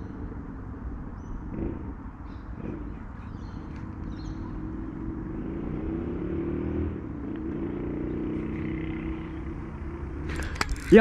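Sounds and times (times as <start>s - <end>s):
motor engine running: 7.9s - 11.0s.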